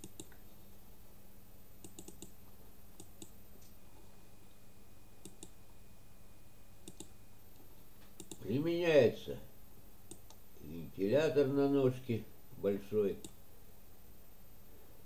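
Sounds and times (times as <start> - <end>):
computer mouse clicking: 0.0 - 0.4, 1.8 - 2.4, 3.0 - 3.4, 5.2 - 5.6, 6.8 - 8.4, 10.1 - 10.4
faint electrical hum: 0.0 - 15.0.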